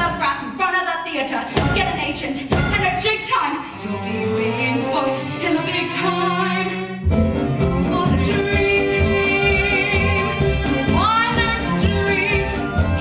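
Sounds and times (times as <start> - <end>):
drums brisk beat: 1.5 - 3.1
pit orchestra with bowed strings: 1.6 - 13.0
woman singing show tune: 7.9 - 13.0.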